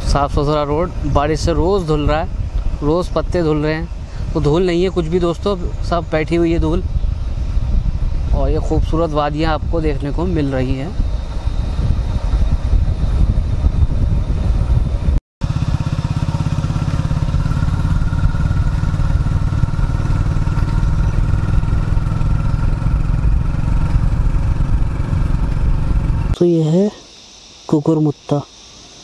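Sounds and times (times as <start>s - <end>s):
motorcycle engine running: 9.4s - 26.4s.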